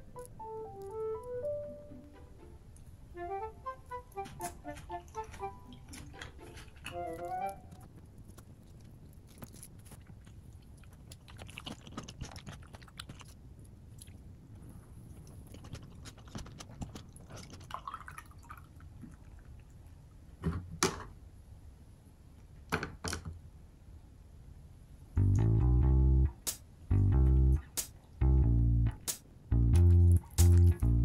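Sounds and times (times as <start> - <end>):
chewing close to microphone: 5.1 - 20.0.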